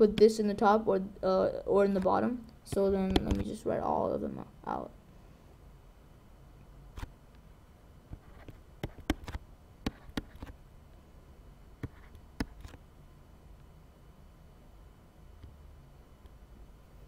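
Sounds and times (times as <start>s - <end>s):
faint low hum: 0.0s - 17.0s
stylus tapping on tablet: 8.1s - 10.5s.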